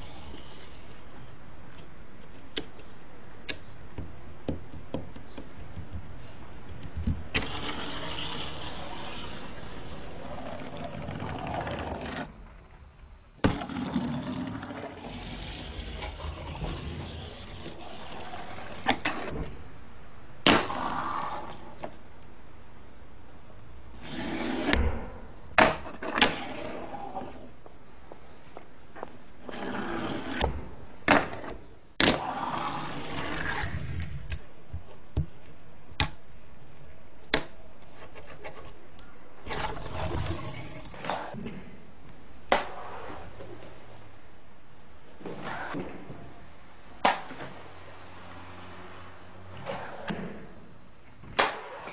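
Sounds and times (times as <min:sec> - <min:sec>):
fingerboard wheels rolling: 0:04.5 - 0:19.6, 0:20.5 - 0:22.0, 0:24.0 - 0:24.8, 0:25.6 - 0:27.7, 0:29.0 - 0:34.4, 0:39.4 - 0:41.6, 0:49.5 - 0:50.6.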